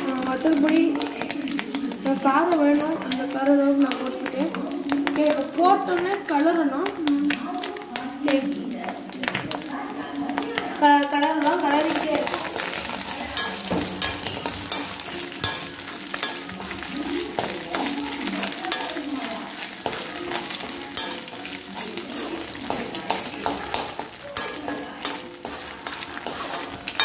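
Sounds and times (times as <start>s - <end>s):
egg sizzling in oil: 0.0s - 27.0s
metal spatula scraping pan: 11.7s - 27.0s.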